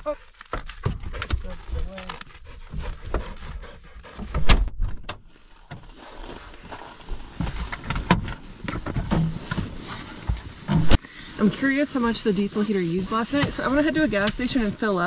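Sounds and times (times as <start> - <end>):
knocks and rustling: 0.4 - 6.0, 7.0 - 11.0.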